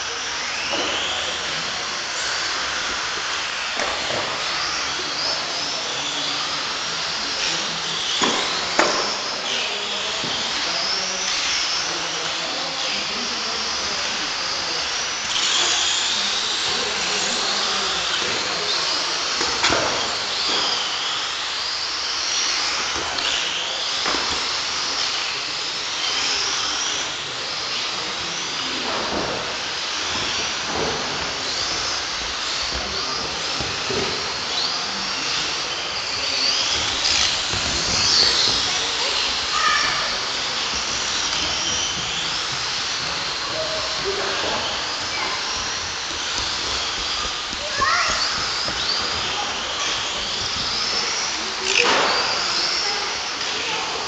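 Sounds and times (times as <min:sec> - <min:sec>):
rc car motors whining: 0:00.0 - 0:54.0.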